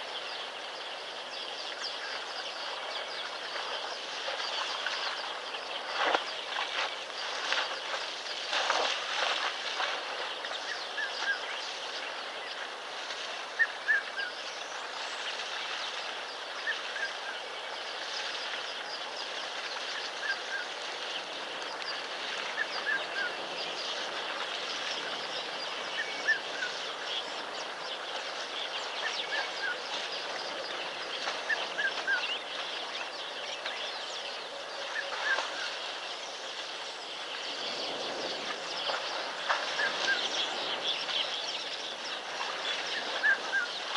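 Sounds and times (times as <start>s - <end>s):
steady outdoor hiss: 0.0s - 43.9s.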